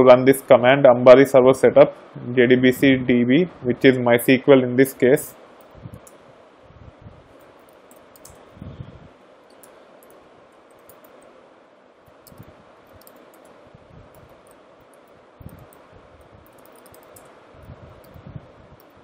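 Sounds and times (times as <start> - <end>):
steady background hiss: 0.0 - 19.0
keyboard typing: 7.4 - 8.4, 9.5 - 11.3, 12.1 - 17.4.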